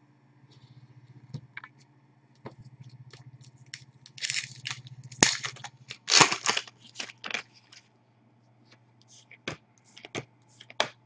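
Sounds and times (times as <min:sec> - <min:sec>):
foil wrapper tearing and crinkling: 0:03.7 - 0:07.8.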